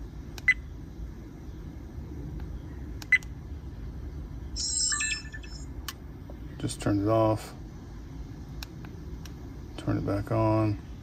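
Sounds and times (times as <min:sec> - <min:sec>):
low steady hum: 0:00.0 - 0:11.0
multi-note electronic chime: 0:04.6 - 0:05.7
short beeps: 0:04.6 - 0:05.7.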